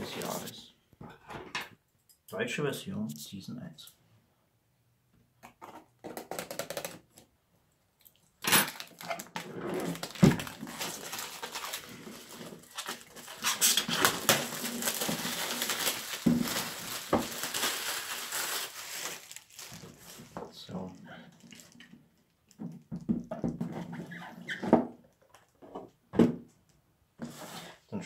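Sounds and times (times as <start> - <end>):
plastic film crinkling: 8.6 - 22.6.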